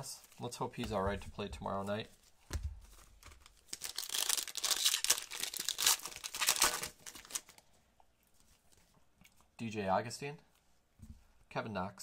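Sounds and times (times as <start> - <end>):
foil wrapper crinkling and tearing: 3.3 - 7.6.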